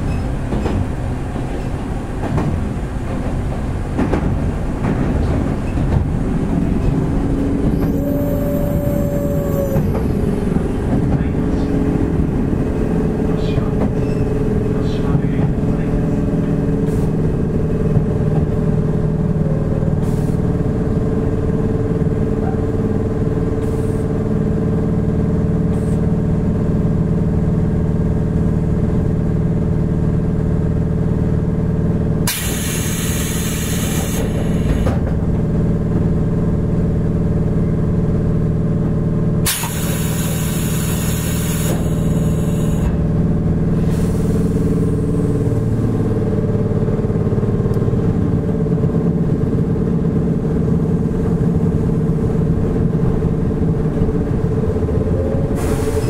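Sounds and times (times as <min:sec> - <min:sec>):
train interior hum: 0:00.0 - 0:56.0
air hiss: 0:32.3 - 0:34.8, 0:39.5 - 0:42.9, 0:55.6 - 0:56.0.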